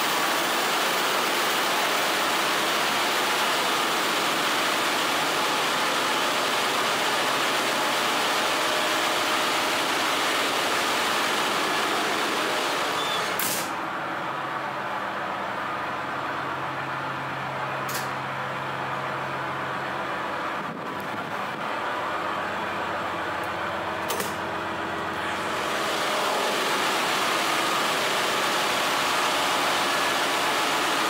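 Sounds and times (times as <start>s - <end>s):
engine-room machinery noise: 0.0s - 31.0s
low machinery hum: 0.8s - 30.9s
short click: 17.9s - 18.2s.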